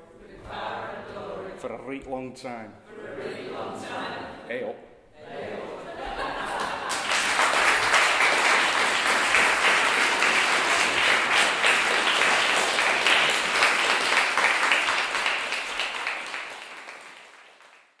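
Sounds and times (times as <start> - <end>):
audience applauding: 6.4 - 18.0.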